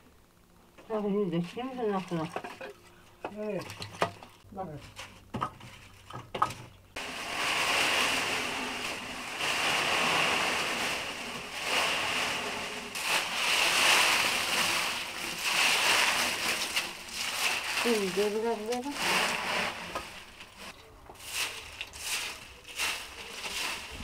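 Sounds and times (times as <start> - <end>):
dry leaves rustling: 7.0 - 24.0.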